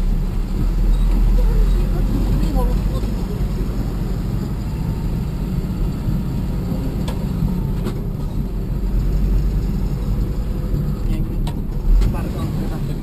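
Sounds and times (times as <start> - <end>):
car engine and road rumble: 0.0 - 13.0.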